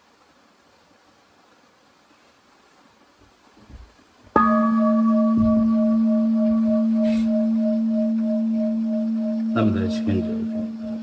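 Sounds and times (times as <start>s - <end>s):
faint low thumps: 4.4s - 11.0s
singing bowl ringing: 4.4s - 11.0s.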